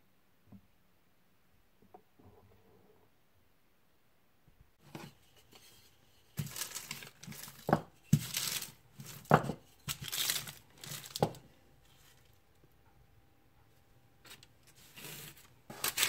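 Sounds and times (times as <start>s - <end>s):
baking paper crinkling: 4.8s - 12.4s, 14.2s - 16.0s.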